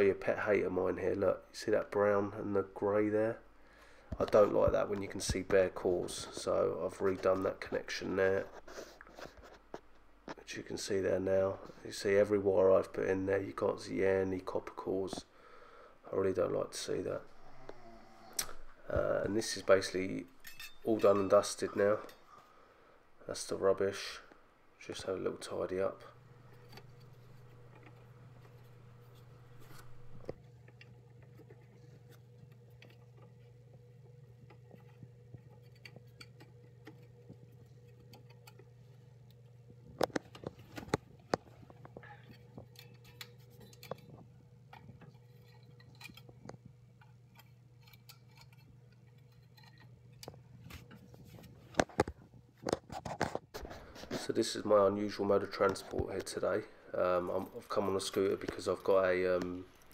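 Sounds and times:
low electrical hum: 0.0 - 59.9
handling clicks and knocks: 39.7 - 53.5.

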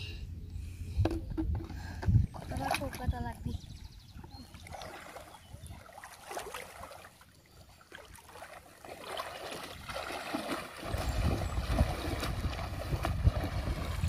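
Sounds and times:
person wading through water: 2.2 - 3.1, 4.1 - 14.0.

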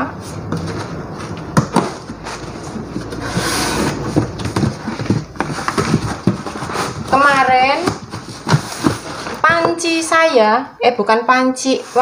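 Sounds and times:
cardboard scraping and rustling: 0.2 - 10.0, 11.6 - 12.0
cardboard rasping: 0.3 - 9.7.

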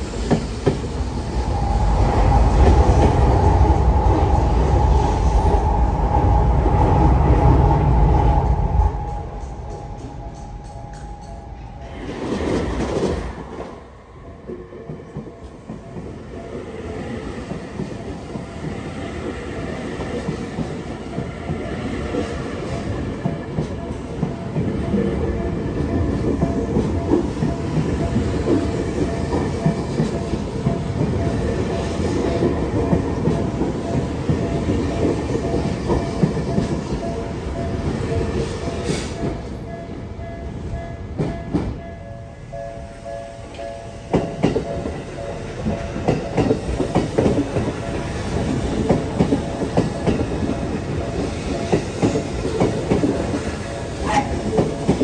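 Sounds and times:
train wheels clicking over rails: 0.0 - 7.1, 14.5 - 39.7, 43.4 - 55.0
crossing warning bell ringing: 1.5 - 5.8, 8.5 - 12.6, 14.0 - 55.0.

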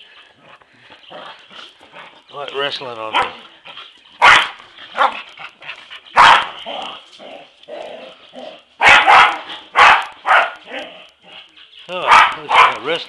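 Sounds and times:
dogs barking: 3.0 - 3.5, 4.2 - 5.3, 6.1 - 7.0, 8.5 - 13.0.

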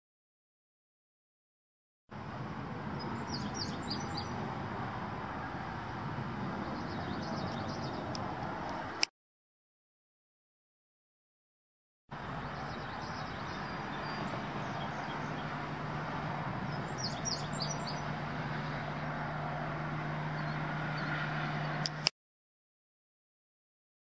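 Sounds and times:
bird chirps: 3.0 - 4.4, 6.6 - 8.1, 12.3 - 15.8, 16.7 - 18.2.

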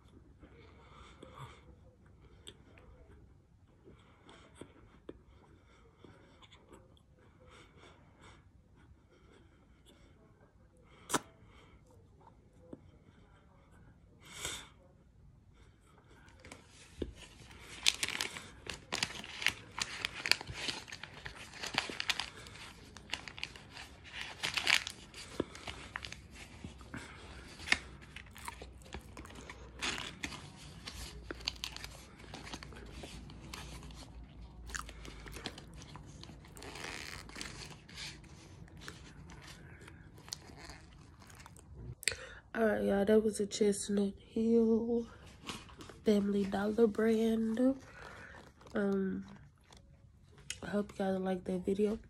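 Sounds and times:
crunching and chewing: 16.1 - 42.2, 47.8 - 50.6.

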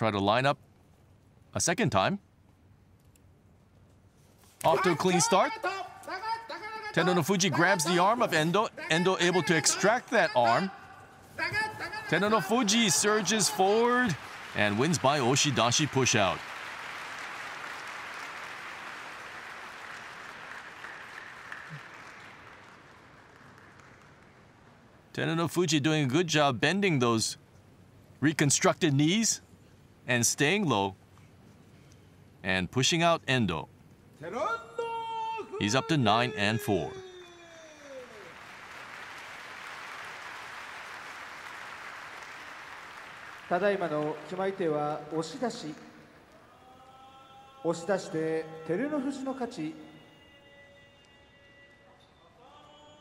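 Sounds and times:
crowd applauding: 11.7 - 25.0, 36.7 - 46.2
audience clapping: 12.1 - 25.1, 37.8 - 46.9.

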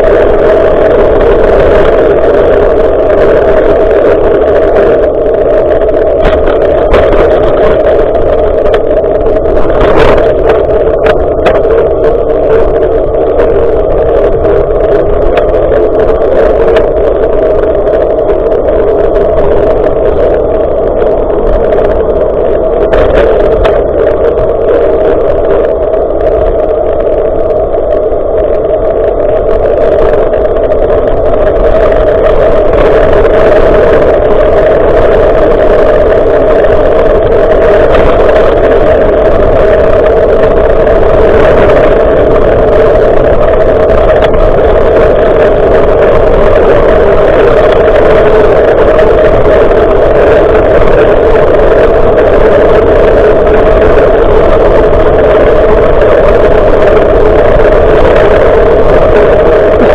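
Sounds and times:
bicycle road rumble: 0.0 - 59.9
wind buffeting microphone: 0.0 - 59.9.

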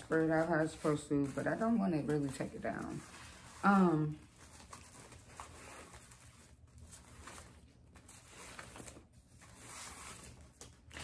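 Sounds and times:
ribbon rustling and crinkling: 0.0 - 11.0.

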